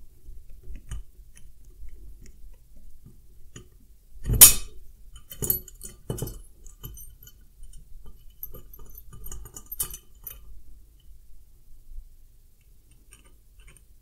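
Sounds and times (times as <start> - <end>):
screwdriver clinking on metal: 5.2 - 10.4.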